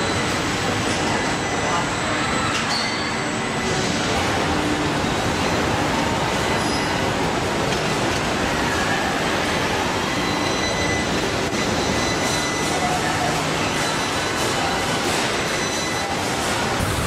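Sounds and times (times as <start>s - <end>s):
industrial rush and rumble: 13.4s - 17.0s.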